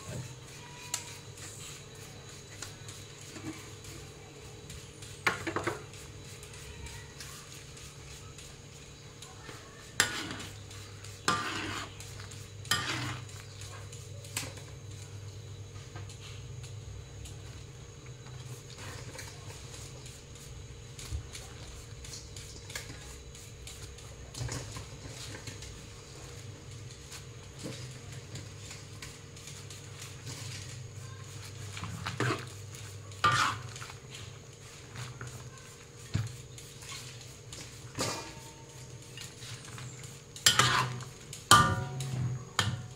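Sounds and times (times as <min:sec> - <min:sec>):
steady low hum: 0:00.0 - 0:42.9
spatula scraping: 0:09.4 - 0:14.5, 0:27.1 - 0:42.9
metal spatula scraping wok: 0:09.9 - 0:13.5, 0:31.8 - 0:32.6, 0:33.2 - 0:34.1, 0:37.8 - 0:42.9
metal spatula clanking on a wok: 0:40.5 - 0:42.9.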